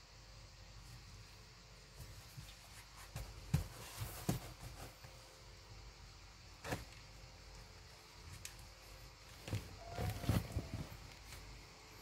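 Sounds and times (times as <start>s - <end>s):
kittens thumping on cardboard: 2.0s - 5.2s, 9.4s - 11.4s.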